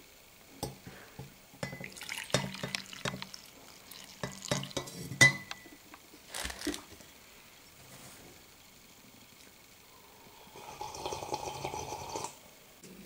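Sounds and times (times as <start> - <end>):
glass clinking on ceramic: 1.6 - 3.2, 4.2 - 5.7
coffee pouring into mug: 1.6 - 5.5, 10.4 - 12.4.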